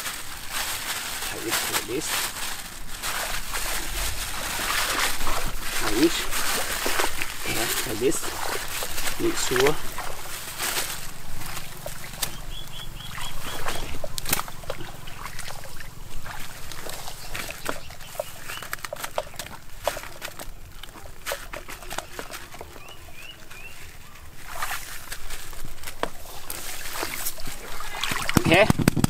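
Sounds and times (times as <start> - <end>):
plastic bag crinkling: 0.0 - 29.0
short high calls: 11.9 - 14.2.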